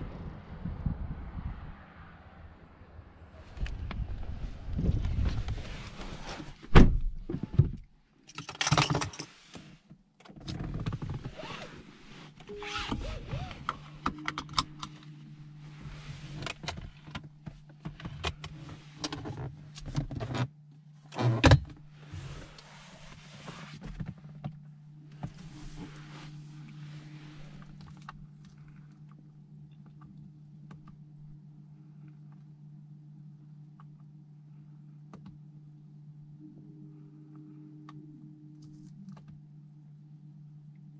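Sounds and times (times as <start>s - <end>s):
steady low hum: 11.2s - 40.9s.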